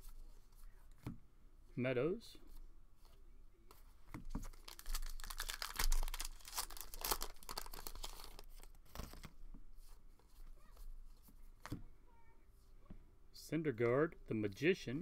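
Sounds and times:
cards rustling: 3.7s - 9.4s
foil wrapper tearing and crinkling: 4.5s - 8.7s.

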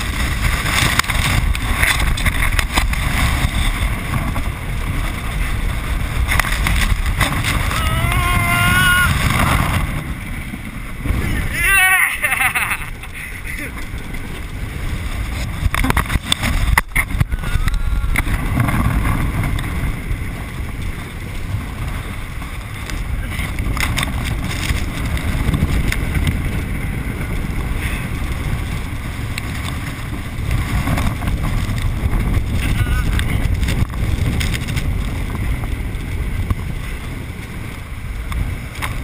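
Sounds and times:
water rushing and splashing: 0.0s - 27.0s
wind buffeting microphone: 0.0s - 39.0s.

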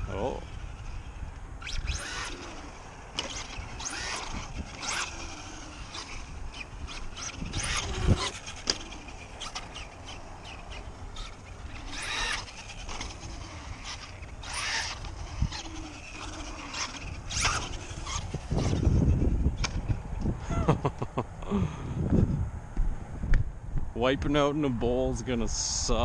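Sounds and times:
rc truck motor whining: 0.0s - 20.3s.

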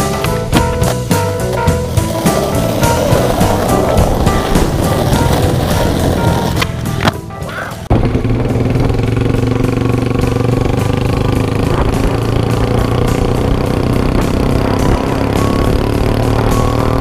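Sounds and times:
distorted low rock chord: 7.9s - 16.6s.

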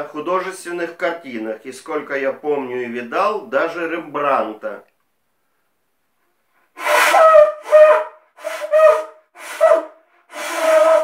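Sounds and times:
seashell horn blasts: 6.8s - 11.0s.

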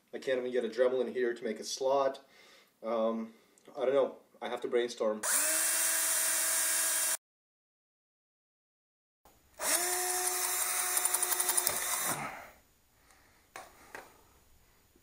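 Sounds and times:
cordless drill running: 5.2s - 7.2s, 9.6s - 12.2s.

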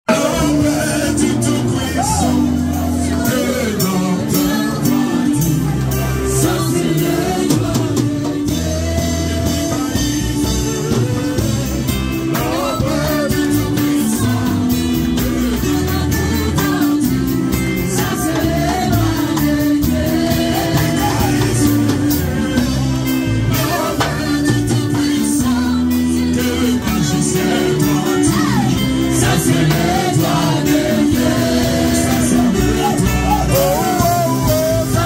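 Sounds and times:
man singing into a microphone: 0.1s - 22.7s, 23.4s - 35.0s.

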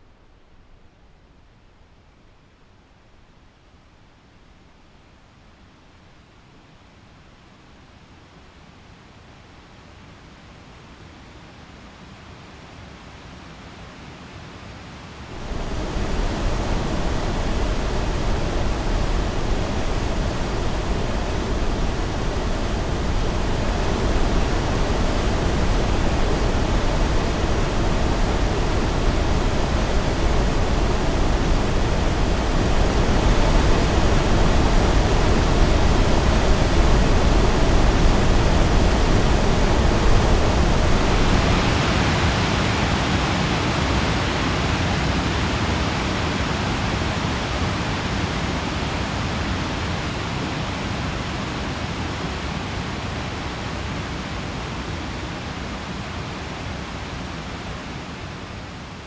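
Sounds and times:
waterfall roaring: 15.3s - 59.0s.

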